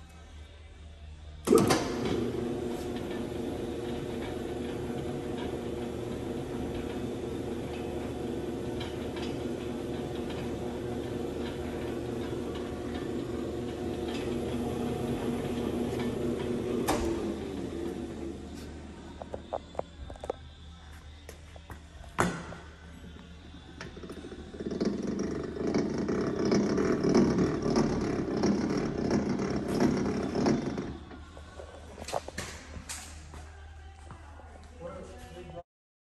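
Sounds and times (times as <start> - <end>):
mixer motor humming: 1.5 - 19.8, 23.7 - 31.2.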